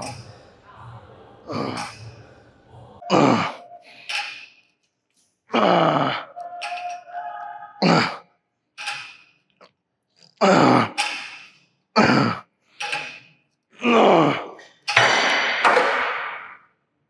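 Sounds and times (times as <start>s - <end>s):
man grunting with effort: 13.8s - 14.6s.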